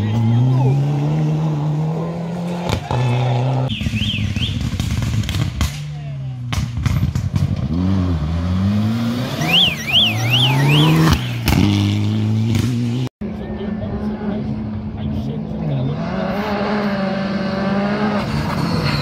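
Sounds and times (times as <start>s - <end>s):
rally car engines revving: 0.0s - 19.0s
car passing close: 7.4s - 13.1s
high warbling tone: 9.3s - 11.2s.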